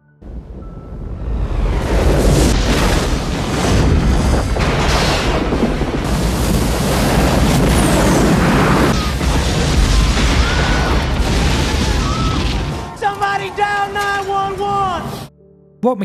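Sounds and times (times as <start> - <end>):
deep explosion rumble: 0.2 - 13.0.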